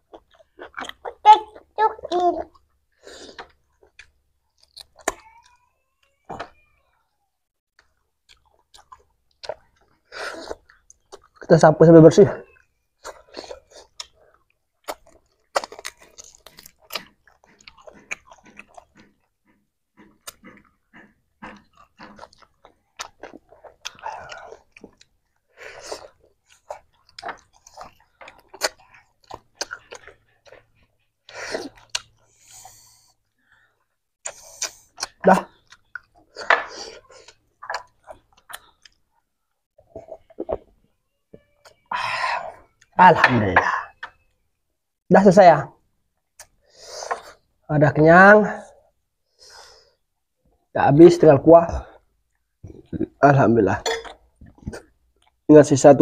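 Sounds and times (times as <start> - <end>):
person chewing meat: 0.0 - 1.7, 2.5 - 5.5, 7.8 - 11.5, 12.5 - 40.7
mouth noises of eating: 0.0 - 7.0, 7.8 - 11.5, 12.2 - 44.4, 46.2 - 47.7, 51.7 - 55.5.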